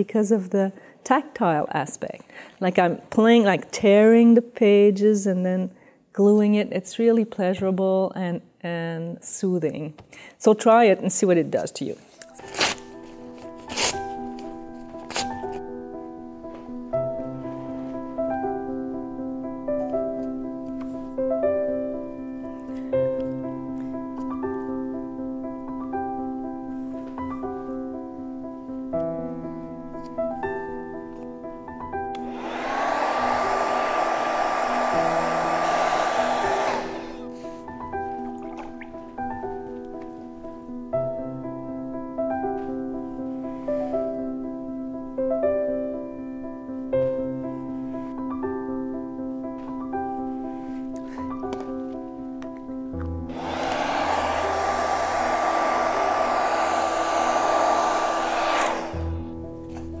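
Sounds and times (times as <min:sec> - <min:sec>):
soft piano music: 0:12.2 - 0:32.3, 0:37.2 - 0:53.3, 0:59.0 - 1:00.0
hair dryer blowing: 0:32.2 - 0:37.5, 0:53.3 - 0:59.4.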